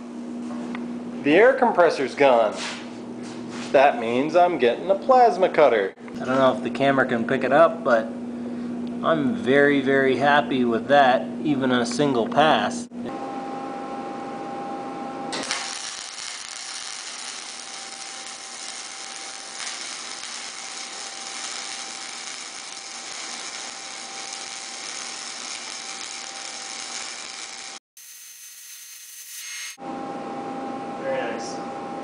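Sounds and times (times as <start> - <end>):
welding arc crackling: 15.3 - 29.8.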